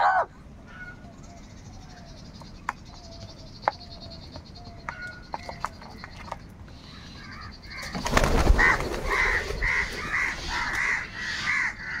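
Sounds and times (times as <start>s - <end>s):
crows cawing: 6.8s - 12.0s
flurry of wingbeats: 7.8s - 10.9s.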